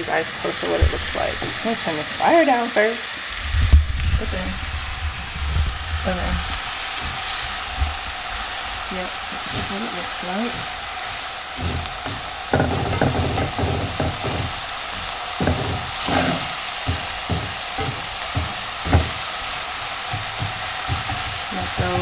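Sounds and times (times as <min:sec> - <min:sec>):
onions sizzling in oil: 0:00.0 - 0:22.0
spatula scraping and knocking pan: 0:08.9 - 0:22.0.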